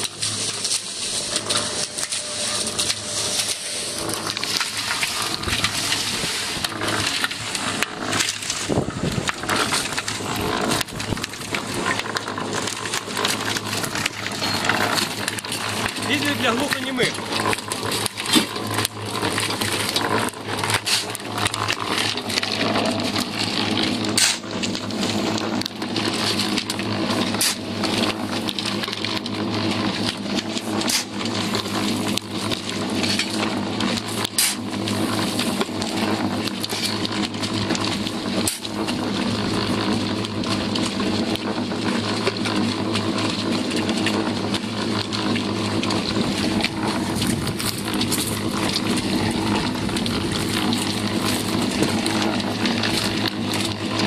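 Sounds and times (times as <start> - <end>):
shovel scraping slag: 0.0 - 28.9, 29.7 - 40.0
concrete mixer humming: 0.0 - 54.0.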